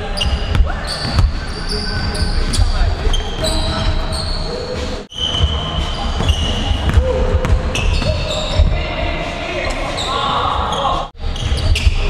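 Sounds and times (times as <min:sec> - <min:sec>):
sneakers squeaking: 0:00.0 - 0:12.0
basketball bouncing on hardwood floor: 0:06.2 - 0:08.8.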